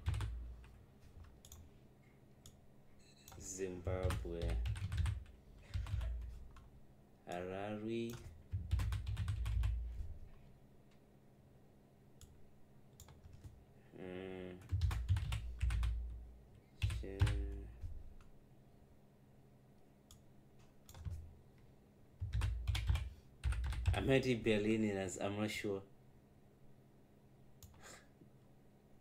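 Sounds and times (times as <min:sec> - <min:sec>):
typing on computer keyboard: 0:00.0 - 0:00.7, 0:04.0 - 0:06.6, 0:08.1 - 0:09.9, 0:13.0 - 0:13.6, 0:14.6 - 0:16.0, 0:16.8 - 0:17.6, 0:20.9 - 0:21.2, 0:22.2 - 0:24.1.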